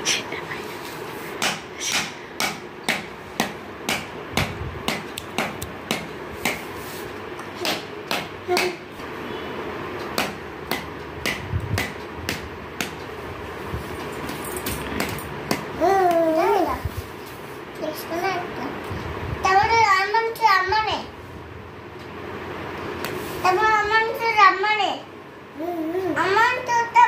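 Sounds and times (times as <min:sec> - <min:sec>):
sharp knocks of hand-held object: 0:01.4 - 0:06.6, 0:07.6 - 0:08.8, 0:10.1 - 0:13.0.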